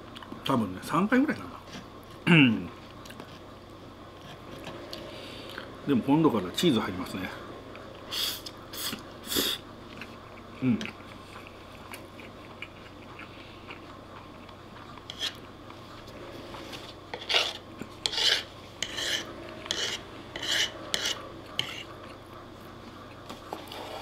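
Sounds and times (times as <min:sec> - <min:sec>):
metal fork scraping wooden plate: 0:15.1 - 0:15.4, 0:17.1 - 0:21.9.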